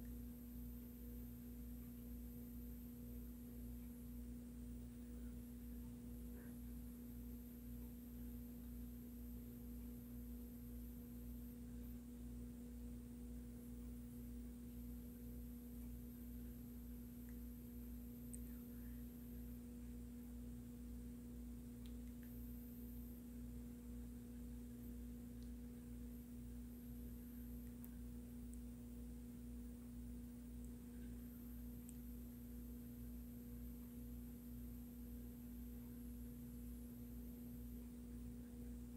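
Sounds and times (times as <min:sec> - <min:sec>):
faint steady hum with tone: 0:00.0 - 0:38.9
faint ticks: 0:21.8 - 0:22.5.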